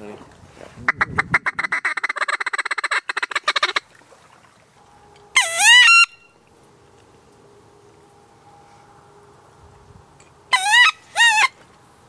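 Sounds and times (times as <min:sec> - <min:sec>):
waterfowl honk: 0:00.9 - 0:03.9, 0:05.3 - 0:06.3, 0:10.5 - 0:11.6.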